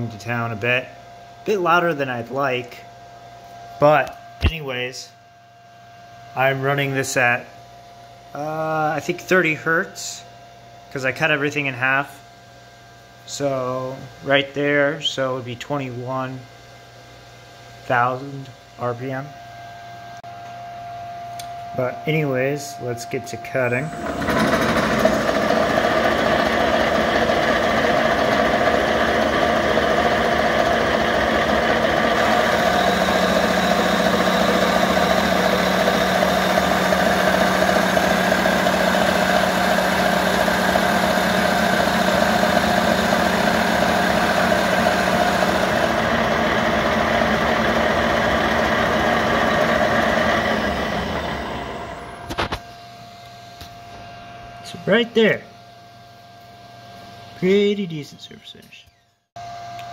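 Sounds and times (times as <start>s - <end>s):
milling machine spindle running: 23.6s - 52.5s
end mill cutting metal: 23.7s - 52.4s
spur gears whirring: 23.8s - 52.4s.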